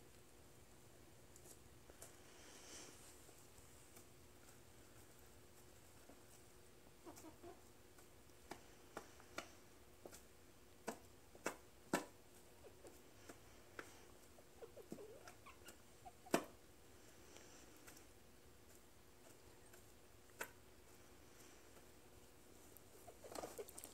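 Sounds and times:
chickens clucking softly: 6.0s - 7.8s, 10.9s - 16.6s, 22.8s - 23.9s.

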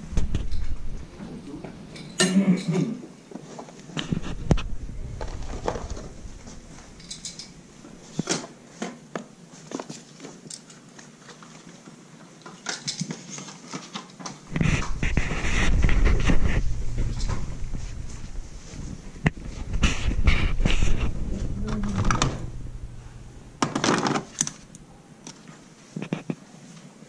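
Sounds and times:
camera handling rumble: 4.0s - 7.6s, 14.5s - 23.0s
small items clicking in plastic bins: 7.0s - 9.0s, 9.7s - 14.4s, 23.6s - 25.5s.

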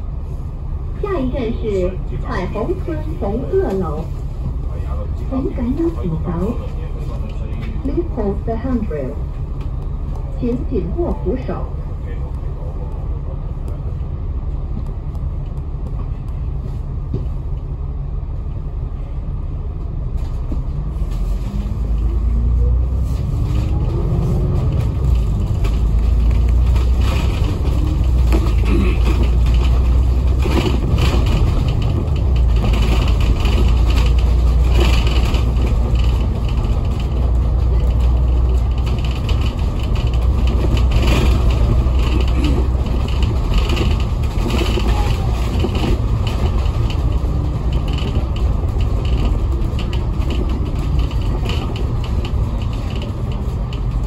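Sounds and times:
bus diesel engine rumbling: 0.0s - 54.0s
rattles and knocks: 23.4s - 54.0s.

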